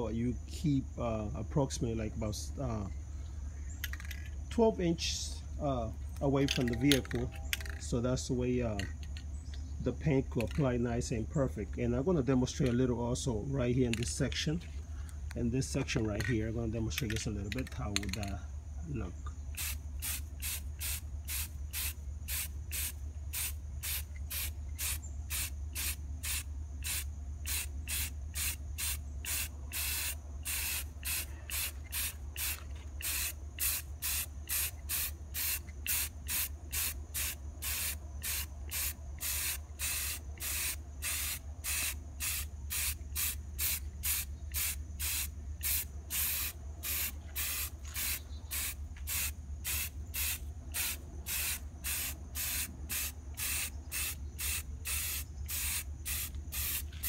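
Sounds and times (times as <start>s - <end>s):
steady low hum: 0.0s - 57.0s
aerosol spray can hissing: 19.6s - 57.0s.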